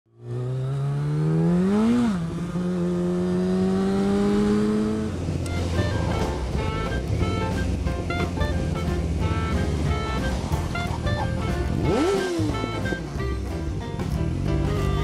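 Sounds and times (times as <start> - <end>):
motorcycle engine revving: 0.1 - 15.0
music: 5.4 - 15.0.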